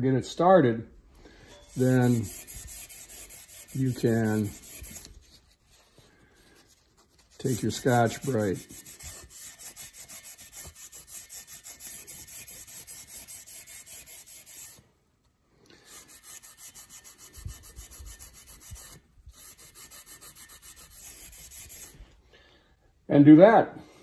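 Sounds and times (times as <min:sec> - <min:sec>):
abrasive pad scrubbing metal: 0:01.5 - 0:05.2, 0:07.2 - 0:14.8.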